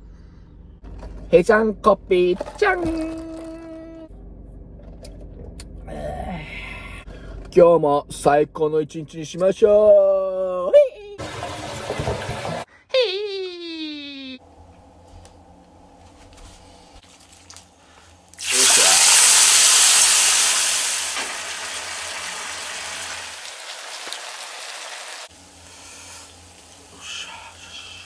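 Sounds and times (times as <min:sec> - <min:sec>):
food sizzling in hot pan: 0:18.4 - 0:27.0.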